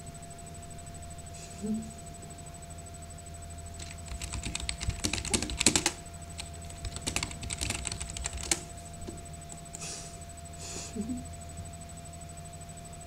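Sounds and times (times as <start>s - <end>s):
typing on computer keyboard: 3.8s - 8.7s.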